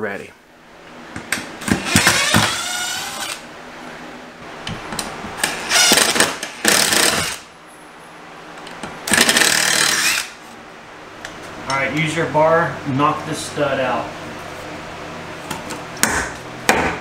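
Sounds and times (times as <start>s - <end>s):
impact driver running: 5.7s - 7.4s, 9.1s - 10.3s.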